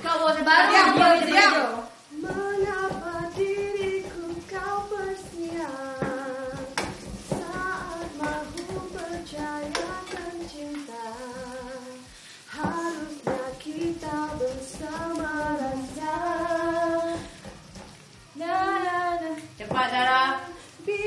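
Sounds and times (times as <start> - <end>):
woman singing: 0.2 - 17.3, 18.4 - 21.0
knife knocking on chopping board: 2.3 - 10.6.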